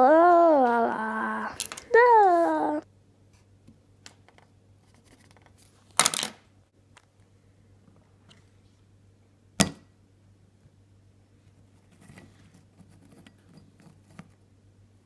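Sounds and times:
plastic toys clattering: 0:01.6 - 0:02.0.

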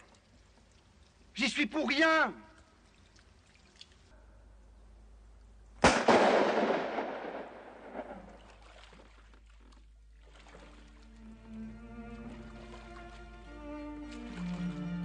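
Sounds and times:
handgun shot echoing off rock: 0:05.8 - 0:08.2.

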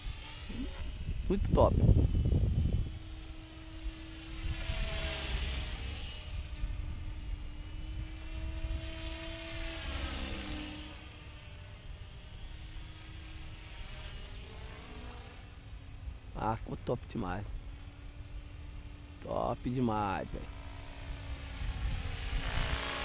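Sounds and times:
model helicopter motor and rotors whine: 0:00.0 - 0:23.0.

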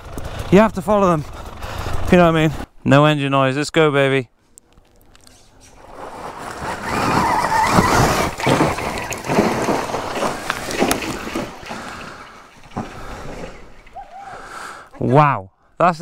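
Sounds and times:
tyre spinning through dirt and rocks: 0:05.8 - 0:14.5
knocks and clatter: 0:06.6 - 0:14.0.

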